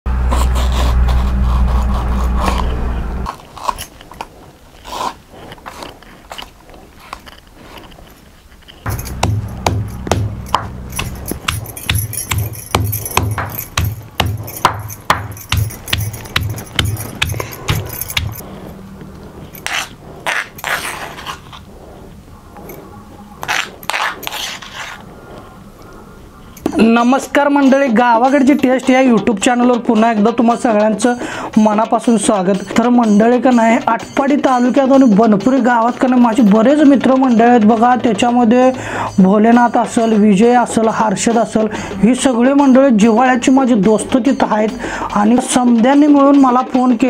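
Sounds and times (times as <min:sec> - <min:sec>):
knife cutting mango: 0:00.2 - 0:03.9
stone pestle pounding in mortar: 0:08.9 - 0:18.4
low rumble: 0:08.9 - 0:20.3
metal spoon scraping stone mortar: 0:19.5 - 0:21.7, 0:22.6 - 0:25.0.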